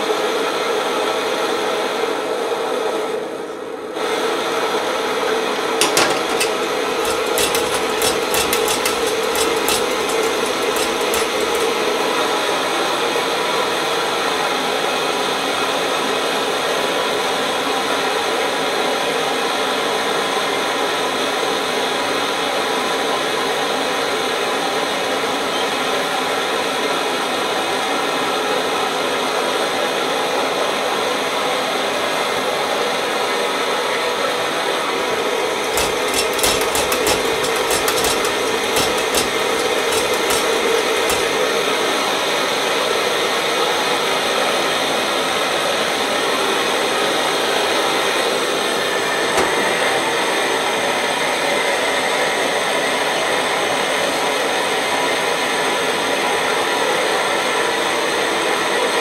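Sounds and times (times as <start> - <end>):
stove burner roaring: 5.5 - 12.6, 35.1 - 42.2
kettle knock: 5.8 - 11.8, 35.7 - 41.4
irregular clicks and knocks: 5.8 - 12.1, 35.6 - 41.6.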